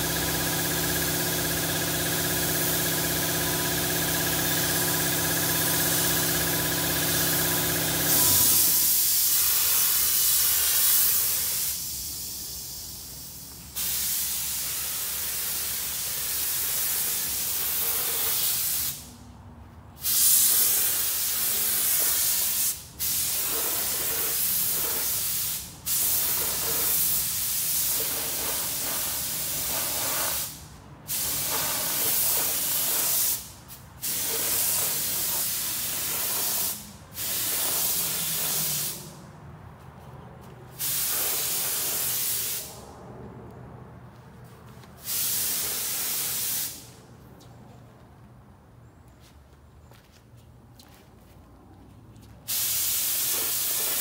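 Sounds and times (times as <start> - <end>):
spray gun hissing: 7.1 - 19.1, 20.0 - 39.1, 40.8 - 42.8, 45.0 - 46.9, 52.5 - 54.0.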